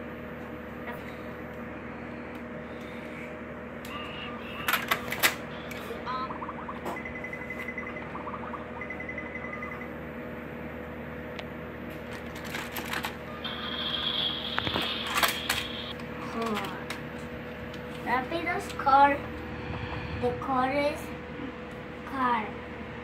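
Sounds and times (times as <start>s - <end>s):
rapid electronic beeping: 3.9s - 10.2s, 13.3s - 15.9s
electronic toy chirps: 5.6s - 10.0s.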